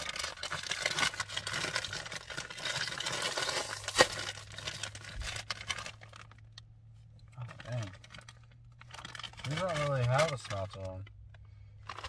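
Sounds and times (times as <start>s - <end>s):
plastic bag crinkling: 0.0s - 6.6s, 7.4s - 12.0s
bag seal popping: 3.0s - 4.4s.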